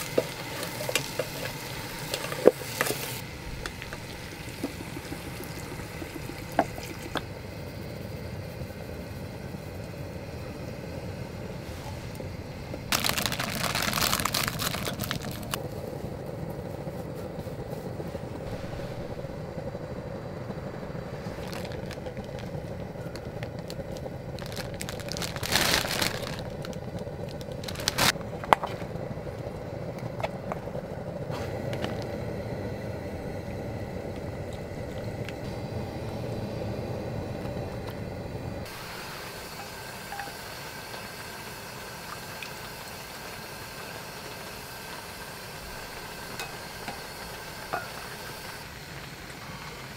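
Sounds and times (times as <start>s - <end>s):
food packaging crinkling: 12.9s - 15.6s, 21.3s - 28.2s.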